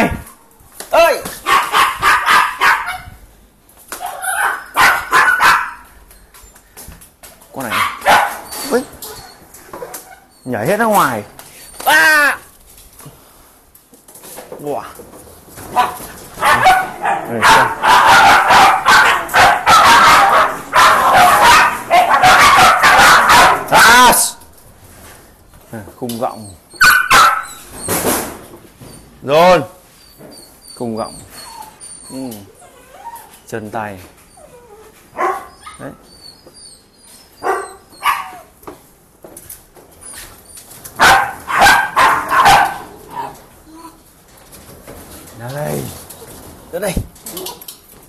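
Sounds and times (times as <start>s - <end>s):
puppies barking: 1.4s - 3.2s, 4.0s - 6.3s, 7.6s - 10.3s, 15.7s - 24.4s, 26.6s - 28.0s, 35.1s - 38.6s, 40.9s - 43.5s.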